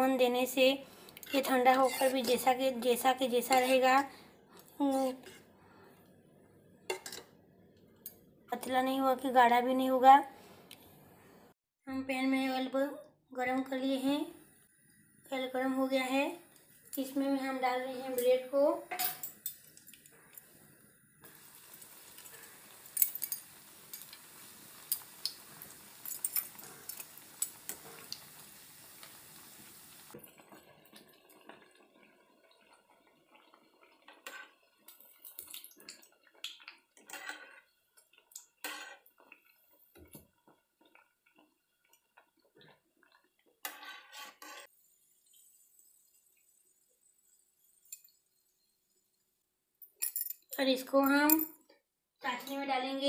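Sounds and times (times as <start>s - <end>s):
metal tongs clinking on pan: 1.2s - 2.6s, 3.4s - 3.8s, 6.9s - 7.3s, 22.9s - 24.3s, 26.0s - 27.8s
oil bubbling: 19.3s - 43.8s, 44.6s - 49.4s
bread sizzling in hot oil: 19.3s - 49.4s.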